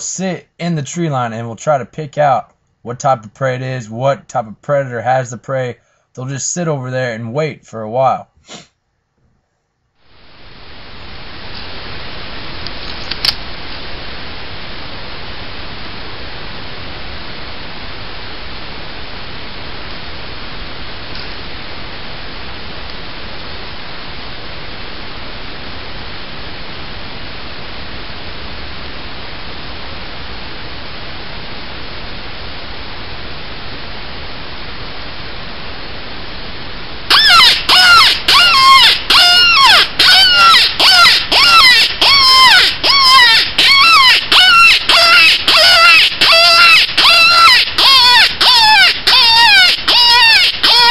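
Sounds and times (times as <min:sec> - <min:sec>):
steady hiss: 0:00.0 - 0:08.8, 0:09.9 - 0:39.1
sharp click: 0:12.6 - 0:13.4
wavering cries: 0:37.1 - 0:50.9.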